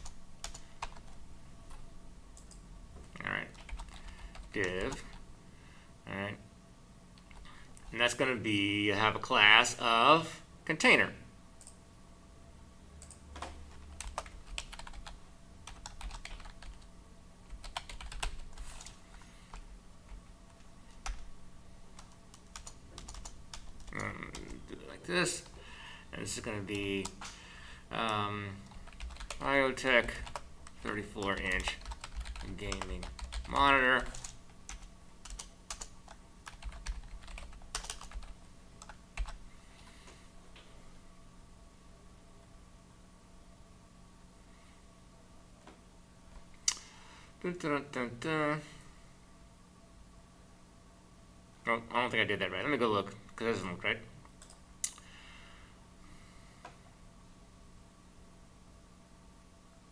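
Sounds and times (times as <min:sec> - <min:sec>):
faint steady hum: 0:00.0 - 0:59.9
keyboard typing clicks: 0:02.4 - 0:02.6, 0:22.0 - 0:24.5, 0:54.4 - 0:55.0.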